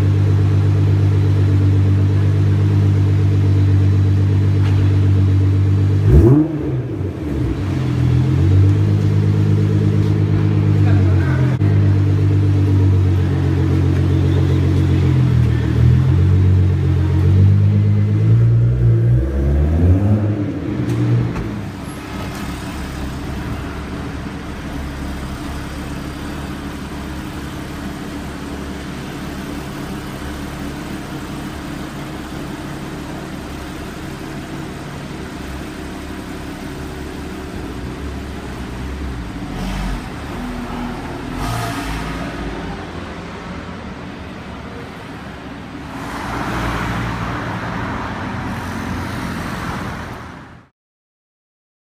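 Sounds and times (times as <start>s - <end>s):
sports car engine idling loudly: 0.0s - 18.2s, 21.5s - 41.4s
engine rev: 0.0s - 43.4s
car engine idling and moving off: 0.0s - 50.4s.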